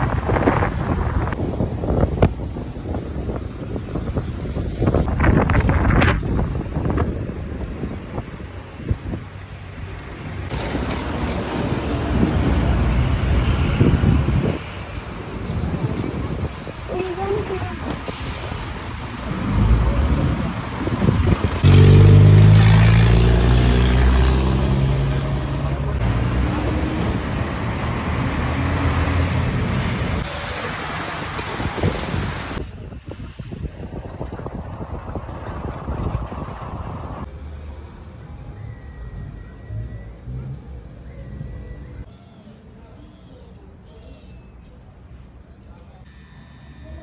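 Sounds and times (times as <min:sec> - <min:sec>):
wind on microphone: 0:00.0 - 0:09.3, 0:12.1 - 0:18.1, 0:19.3 - 0:21.7, 0:31.4 - 0:37.3
traffic rumble: 0:00.0 - 0:46.0
motorcycle and scooter engines: 0:02.8 - 0:44.1.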